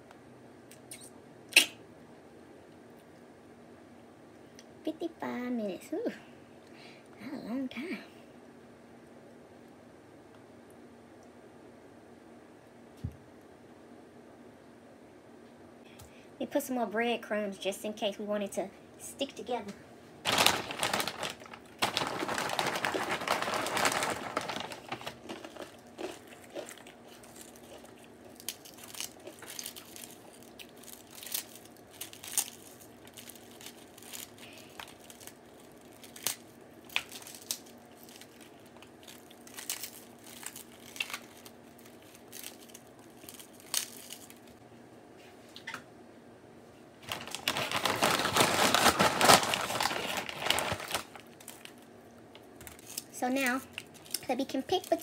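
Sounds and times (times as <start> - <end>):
packaging bag crinkling: 20.3 - 44.6, 47.0 - 51.8
small crackles and clicks: 20.3 - 44.6, 47.0 - 55.0.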